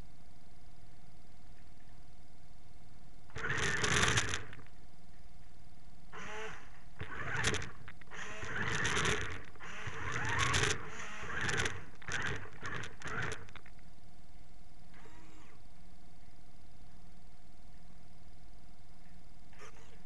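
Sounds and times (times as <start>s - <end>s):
faint steady hum: 0.0s - 20.0s
small electric motors whirring: 3.3s - 4.7s, 6.1s - 13.7s, 14.9s - 15.6s, 19.6s - 20.0s.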